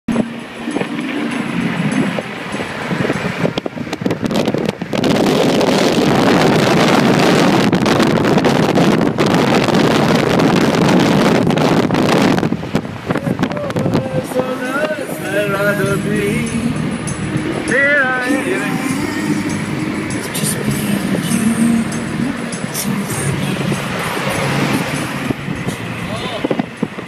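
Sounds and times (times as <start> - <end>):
car road noise at speed: 0.1 - 27.0
wind buffeting microphone: 0.1 - 27.0.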